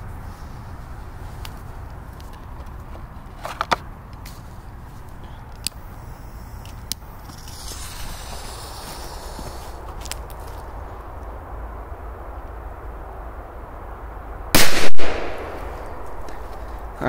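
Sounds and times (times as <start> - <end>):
firecracker fuse hissing: 5.8 - 10.2.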